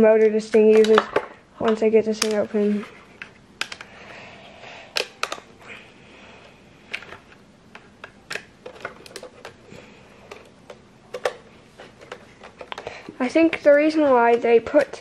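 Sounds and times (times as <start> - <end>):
plastic housing clicks and taps: 5.0 - 5.4.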